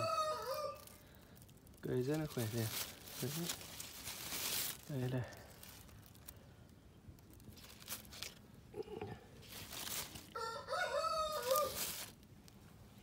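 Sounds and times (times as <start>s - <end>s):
rooster crowing: 0.0s - 1.0s, 10.3s - 12.1s
soft rustles: 0.8s - 6.5s, 7.2s - 8.4s, 9.4s - 10.4s, 11.3s - 12.8s.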